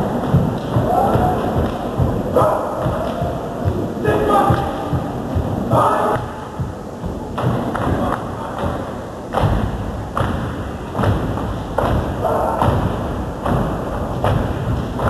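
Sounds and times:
people clapping in unison: 0.0 - 2.1, 7.4 - 8.8
people stomping in unison: 0.0 - 15.0.

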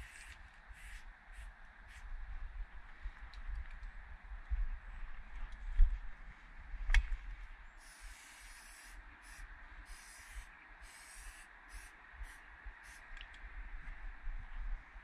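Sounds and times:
aerosol spray can hissing: 0.0 - 2.0, 7.8 - 13.0.

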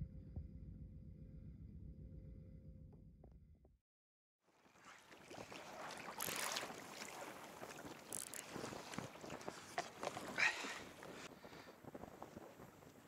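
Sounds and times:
water lapping against kayak: 4.5 - 13.0.

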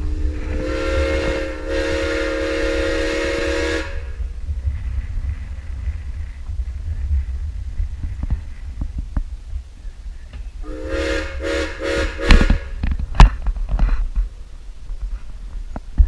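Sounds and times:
steam locomotive whistle: 0.0 - 4.2, 10.6 - 12.8
moving train rumble: 0.0 - 16.0.

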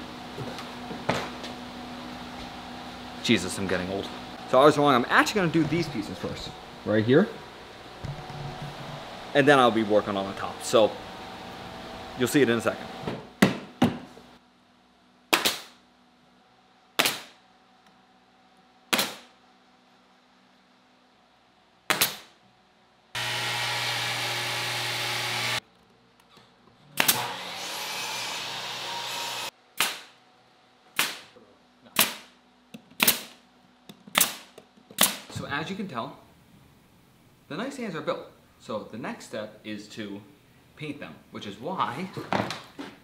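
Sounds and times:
nail gun firing into wood: 18.9 - 19.3, 21.9 - 22.3, 27.0 - 27.4, 31.0 - 31.3, 32.0 - 32.3, 33.0 - 33.3, 34.1 - 35.3
power tool noise: 23.2 - 25.6, 27.0 - 29.5.

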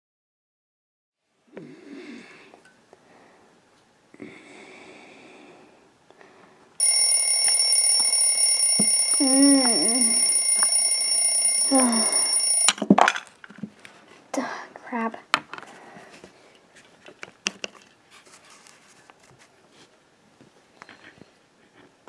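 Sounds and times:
alarm clock ringing: 6.8 - 12.7
drawn-out voice: 8.9 - 10.3, 11.4 - 12.6.

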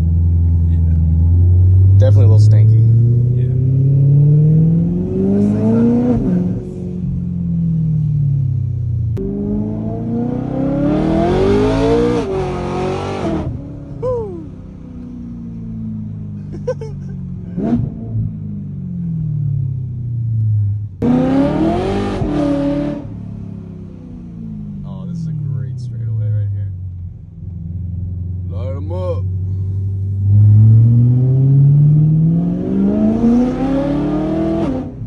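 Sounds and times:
car engine revving hard: 1.2 - 7.1, 9.2 - 13.7, 17.4 - 18.4, 21.0 - 23.7, 30.1 - 35.0.

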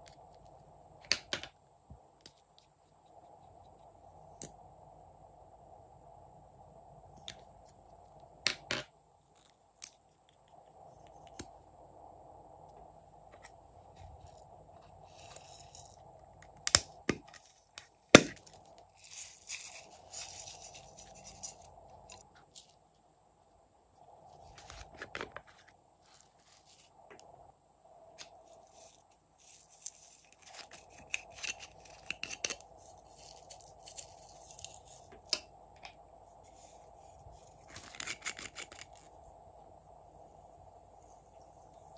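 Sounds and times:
sequins and glitter rattling: 18.4 - 22.8.

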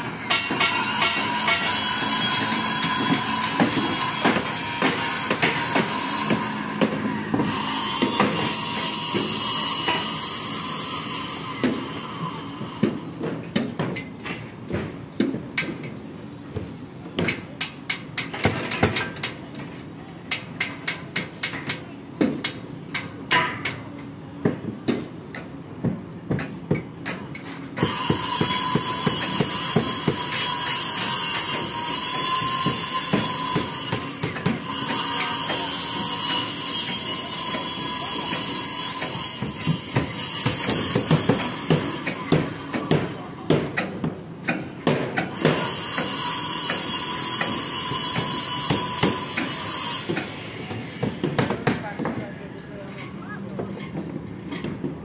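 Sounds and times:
hammer blows on metal: 0.0 - 13.7, 26.4 - 52.2.

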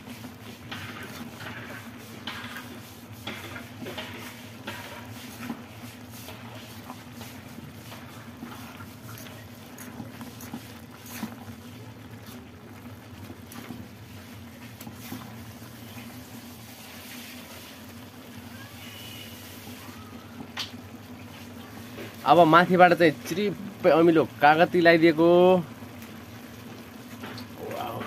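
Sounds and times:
spoon stirring wet noodles: 0.2 - 12.5.

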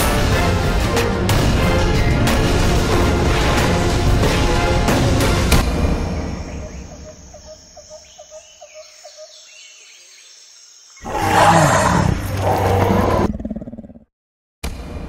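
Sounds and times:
faint bird-like chirps: 6.2 - 11.0
dinosaur roar: 11.0 - 14.1.

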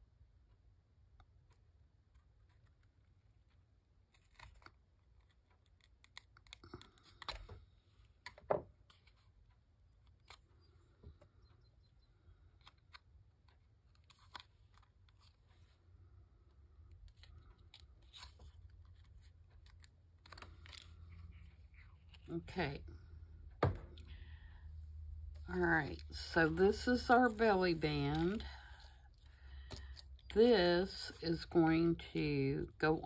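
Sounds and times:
paper rustling: 16.9 - 22.4, 26.0 - 31.5.

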